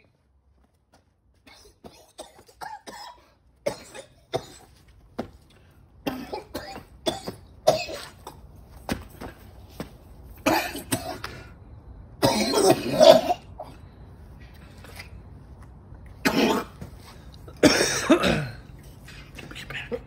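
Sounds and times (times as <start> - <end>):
man coughing and hacking: 1.5 - 4.8, 6.0 - 8.4, 10.4 - 11.4, 12.2 - 13.6, 16.2 - 16.9, 17.5 - 20.0.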